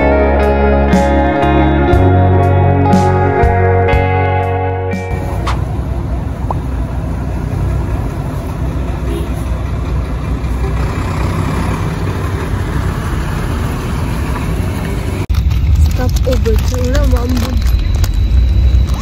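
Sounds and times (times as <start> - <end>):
slow street traffic rumble: 0.0 - 19.0
trucks crawling past: 5.0 - 19.0.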